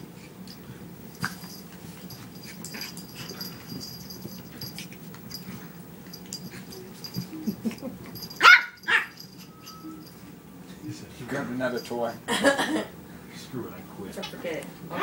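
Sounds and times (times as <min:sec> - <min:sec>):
puppy yipping: 0:08.4 - 0:09.5.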